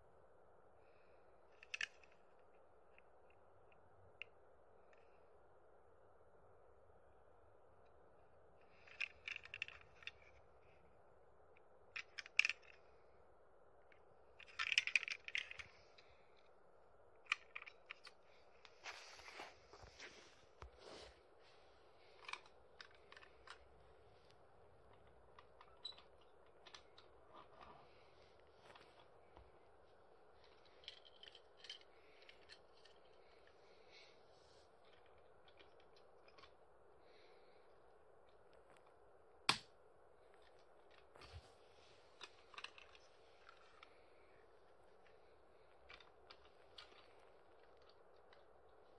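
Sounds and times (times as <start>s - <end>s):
plastic toy train clicking: 8.7s - 10.3s, 11.9s - 12.8s, 14.4s - 15.8s
plastic toy train clicks: 14.4s - 15.7s.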